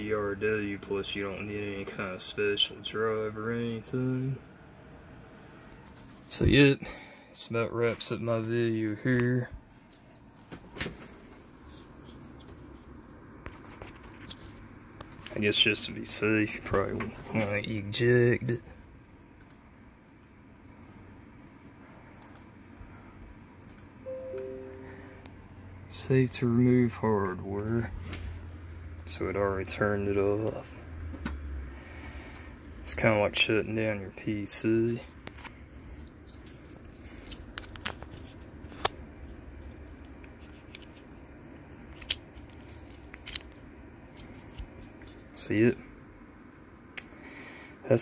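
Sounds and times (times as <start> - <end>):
computer hum: 0.0 - 48.0
faint mouse clicks: 19.4 - 19.6
falling two-note chime: 24.1 - 25.2
light clicks and handling noises: 35.0 - 45.4.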